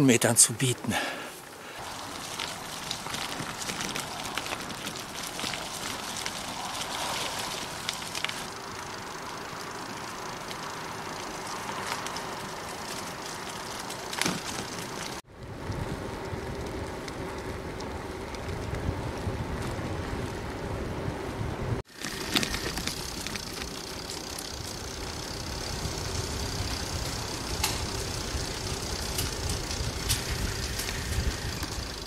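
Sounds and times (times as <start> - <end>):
bicycle rolling on asphalt: 1.0 - 32.0
bicycle tyres rolling over leaves: 1.0 - 32.0
grit crunching: 1.8 - 8.6, 21.9 - 25.0
wind rumble on microphone: 15.3 - 21.8, 24.7 - 32.0.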